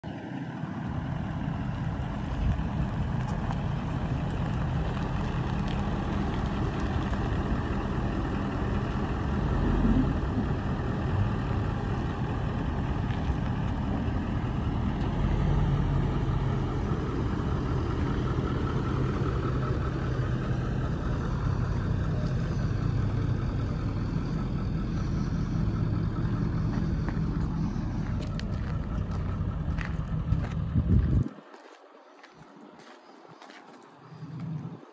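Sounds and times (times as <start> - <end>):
pickup engine idling: 0.1 - 34.5.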